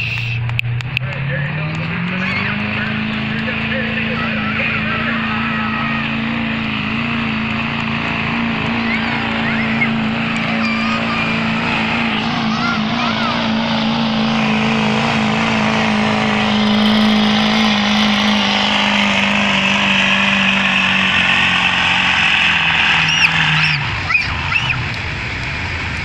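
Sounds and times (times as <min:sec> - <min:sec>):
diesel truck engine under load: 0:00.0 - 0:26.0
short whistles: 0:23.0 - 0:24.8.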